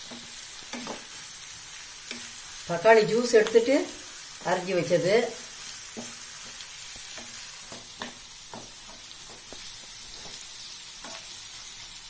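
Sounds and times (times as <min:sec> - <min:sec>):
wooden spatula scraping a pan: 0:00.0 - 0:01.3, 0:05.8 - 0:11.4
vegetables sizzling in hot oil: 0:00.0 - 0:12.0.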